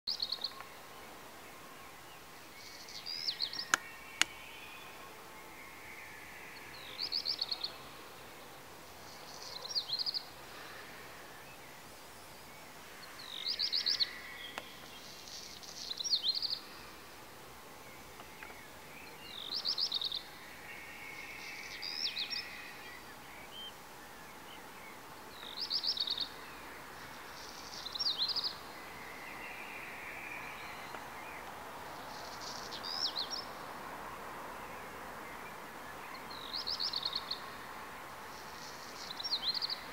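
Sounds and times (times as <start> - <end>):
songbird singing: 0.1 - 39.9.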